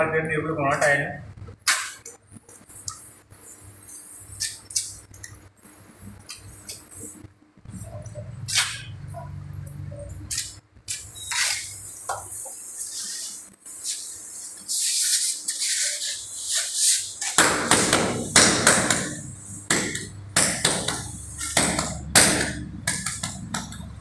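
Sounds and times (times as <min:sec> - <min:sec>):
trowel scraping mortar on tile: 0:12.4 - 0:17.4
hand patting tile: 0:17.2 - 0:23.8.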